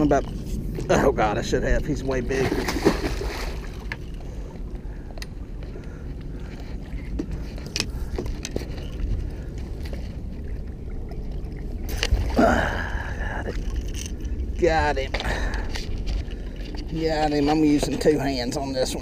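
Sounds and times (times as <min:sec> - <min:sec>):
steady low rumble: 0:00.0 - 0:19.0
water splashing against boat: 0:02.1 - 0:04.5.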